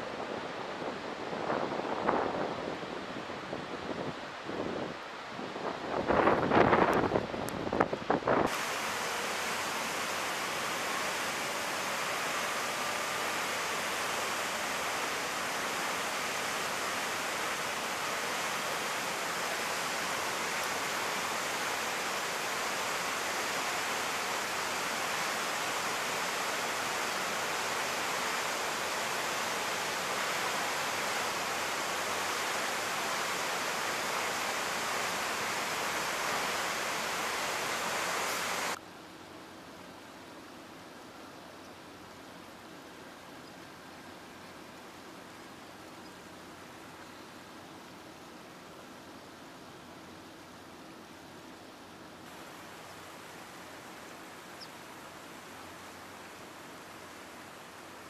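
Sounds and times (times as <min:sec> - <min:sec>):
water rushing down spillway: 0:08.3 - 0:38.8, 0:52.3 - 0:58.0.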